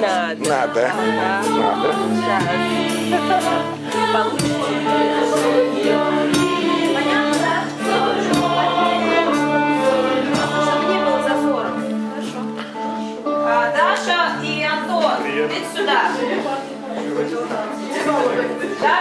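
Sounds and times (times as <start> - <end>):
group of voices singing: 0.0 - 13.2, 17.8 - 19.0
acoustic ensemble playing: 0.0 - 19.0
drum strikes: 0.4 - 11.6.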